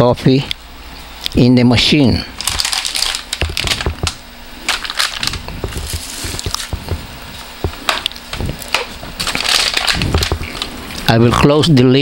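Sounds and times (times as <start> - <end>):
coffee bag crinkling: 2.4 - 11.1
cup and jar knocking on plastic: 3.4 - 4.2, 5.2 - 8.9, 10.0 - 10.6.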